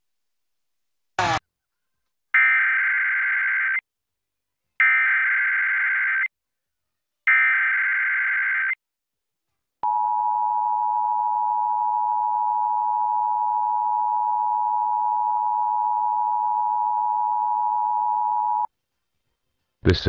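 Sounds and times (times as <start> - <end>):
harsh two-tone alert buzz: 1.2 - 1.4.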